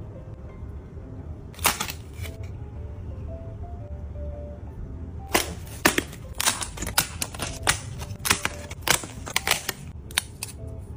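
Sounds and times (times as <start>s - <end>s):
puzzle pieces clicking and snapping: 5.3s - 10.6s.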